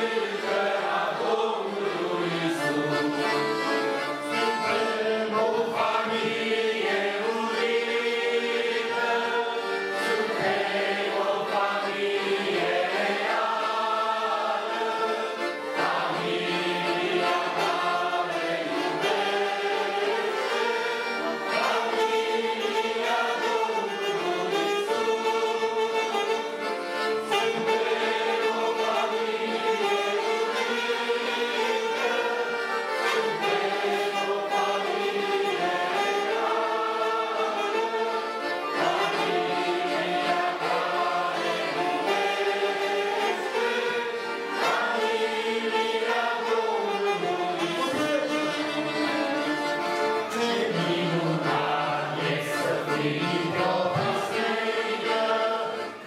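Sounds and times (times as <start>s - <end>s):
women singing together: 0.0s - 2.8s, 4.9s - 20.8s, 21.5s - 23.9s, 33.1s - 37.8s, 38.8s - 48.1s, 50.4s - 56.0s
accordions: 0.0s - 56.0s
saxophone: 0.0s - 56.0s.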